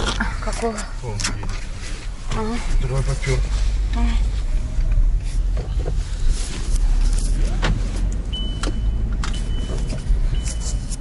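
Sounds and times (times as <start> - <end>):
car road and engine rumble: 0.0 - 11.0
high steady beeps: 8.3 - 10.9.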